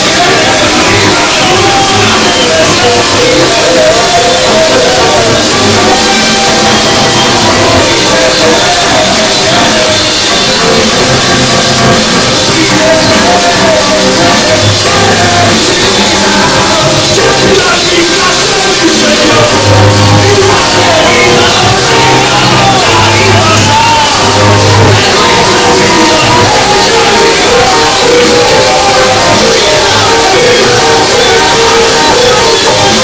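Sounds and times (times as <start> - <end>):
amplified live band with drums: 0.0 - 33.0
men's choir singing worship song: 0.0 - 33.0.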